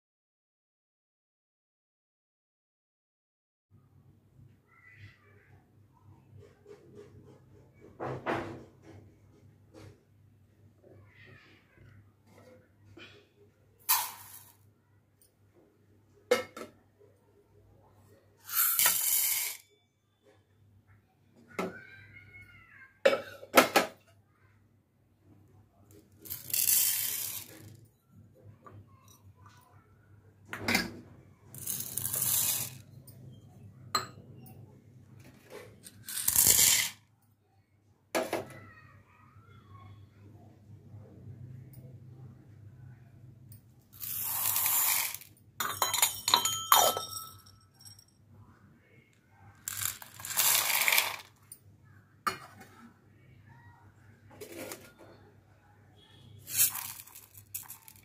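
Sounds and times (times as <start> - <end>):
dry grains poured into bowl: 18.5 - 19.6, 26.3 - 27.7, 31.6 - 32.8, 44.0 - 45.3, 49.7 - 51.3, 56.5 - 58.0.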